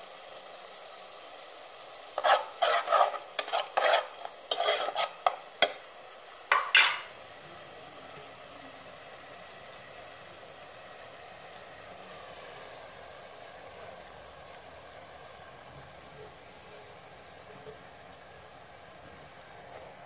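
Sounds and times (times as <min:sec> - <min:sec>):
tomatoes frying in oil hiss: 0:00.0 - 0:20.0
spoon scraping a metal pot: 0:02.1 - 0:05.8.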